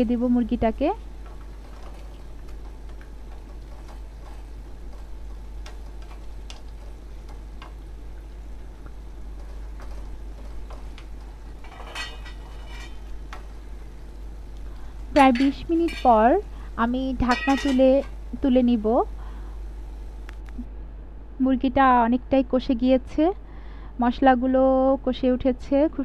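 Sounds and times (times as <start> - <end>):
low steady hum: 0.0 - 26.0
spatula scraping a pan: 11.7 - 13.1.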